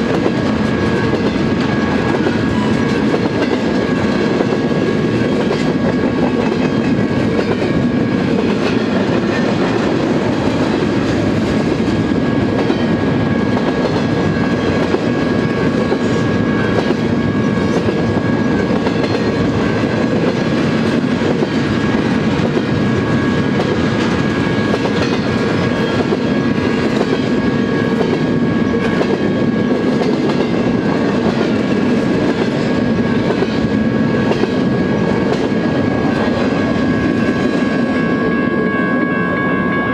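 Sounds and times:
freight train cars rumbling past: 0:00.0 - 0:39.9
thin steady high tone: 0:37.9 - 0:39.9.

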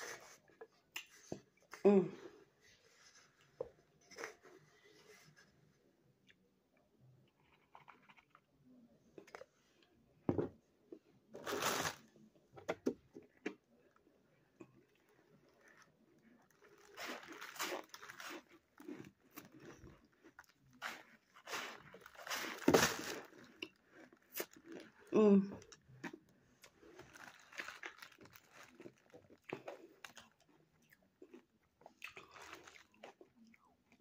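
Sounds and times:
crunching and chewing ice: 0:13.3 - 0:34.0.

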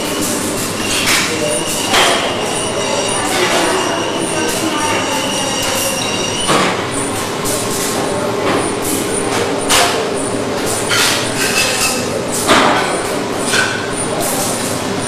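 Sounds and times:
machine noise with whining tones: 0:00.0 - 0:11.4.

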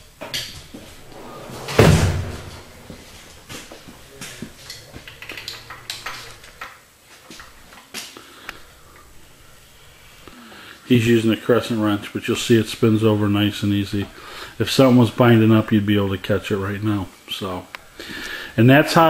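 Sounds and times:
loud knock: 0:01.2 - 0:03.0.

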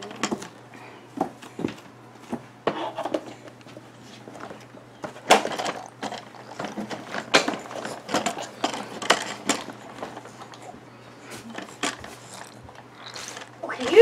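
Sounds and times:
plastic toys clacking and rattling: 0:05.0 - 0:10.7, 0:11.5 - 0:14.0.

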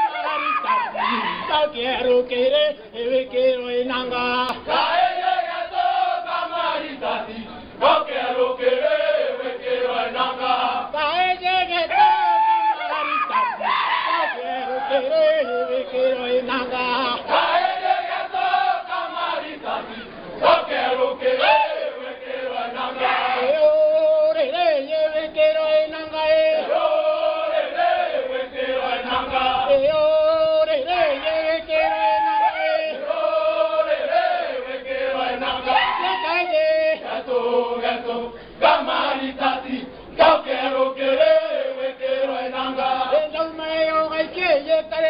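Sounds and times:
group chanting in unison: 0:04.6 - 0:11.0, 0:17.0 - 0:23.6, 0:26.6 - 0:29.9, 0:31.1 - 0:43.3.

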